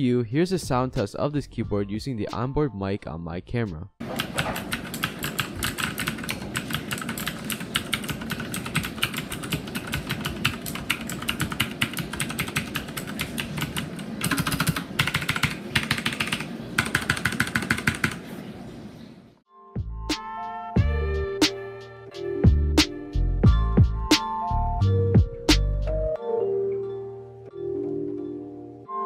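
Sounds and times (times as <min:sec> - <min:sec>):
mechanical keyboard clicking: 0:04.1 - 0:18.2.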